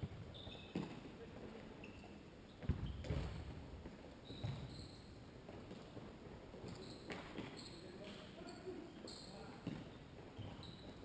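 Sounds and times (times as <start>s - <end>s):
ball thuds echoing indoors: 0.0s - 1.1s, 2.6s - 4.9s
shoes squeaking on floor: 0.0s - 11.0s.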